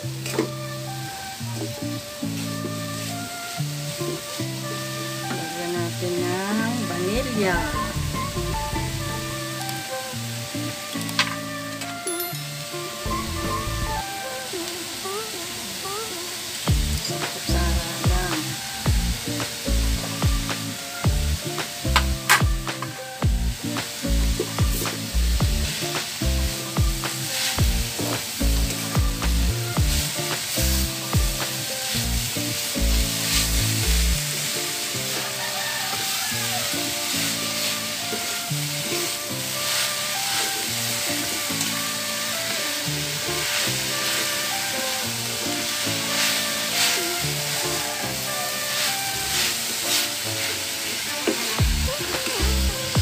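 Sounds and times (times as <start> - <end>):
background music with bass beat: 0.0 - 14.2, 16.7 - 35.4, 51.6 - 53.0
light sizzle: 0.0 - 53.0
wooden spoon scraping a wok: 30.2 - 52.3.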